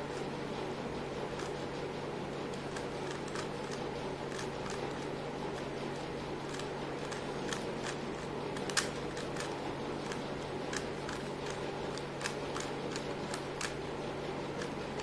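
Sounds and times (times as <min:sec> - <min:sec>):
steady low hum: 0:00.0 - 0:15.0
puzzle cube plastic clicking: 0:06.5 - 0:13.8.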